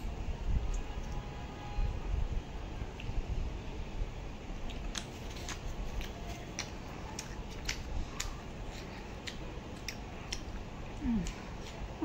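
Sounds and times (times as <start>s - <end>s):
person chewing crunchy food: 4.7s - 10.6s.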